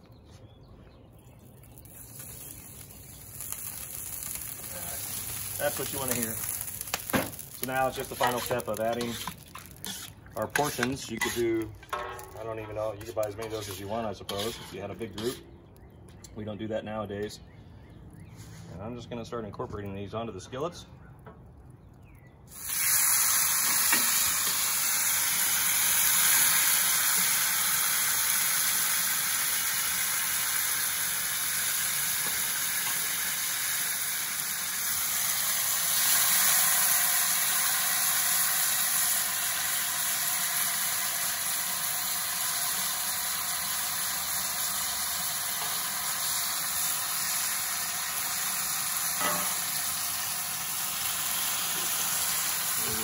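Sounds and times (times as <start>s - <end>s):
food sizzling in skillet: 1.6s - 12.4s, 13.0s - 15.4s, 22.5s - 53.0s.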